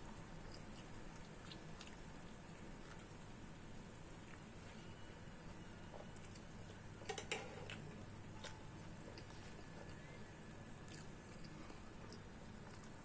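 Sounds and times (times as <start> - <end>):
low steady hum: 0.0 - 13.0
metal utensils clattering on pan: 7.1 - 7.6.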